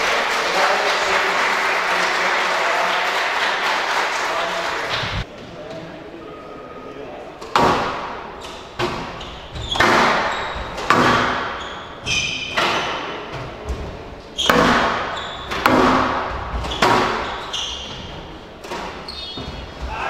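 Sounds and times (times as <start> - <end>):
squash ball hits echoing: 7.4 - 20.0.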